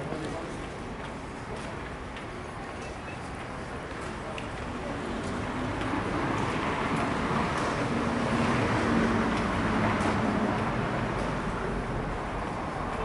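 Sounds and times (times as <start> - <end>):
vehicle passing by: 4.8 - 13.0.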